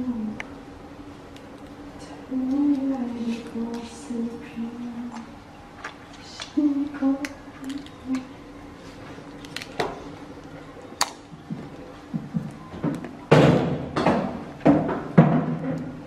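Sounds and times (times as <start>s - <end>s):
crunching and rustling: 5.1s - 6.6s, 7.3s - 13.7s
crab shells cracking: 7.2s - 8.3s, 9.2s - 11.4s.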